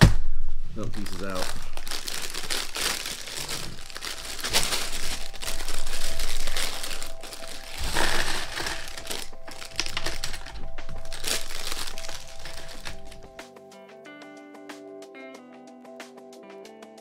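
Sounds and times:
plastic bag crinkling: 0.7s - 13.3s
plastic pieces clattering: 0.8s - 13.3s.

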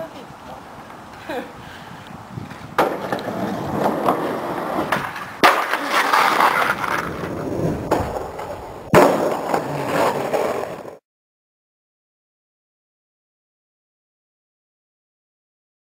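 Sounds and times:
skateboard wheels rolling: 2.1s - 11.0s
skateboard clacking down: 2.8s - 11.0s.

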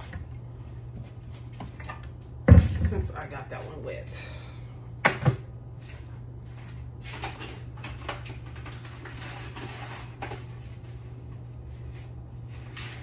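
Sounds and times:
steady low hum: 0.0s - 13.0s
clattering and handling noises: 5.0s - 11.0s.

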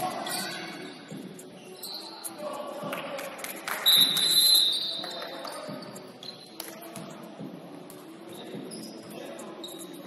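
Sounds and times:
referee whistle: 3.8s - 5.0s.

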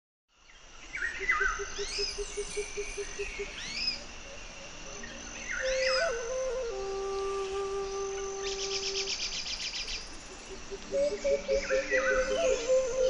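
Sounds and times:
high insect drone: 0.3s - 13.0s
birds chirping: 1.0s - 13.0s
flute note: 5.6s - 9.4s.

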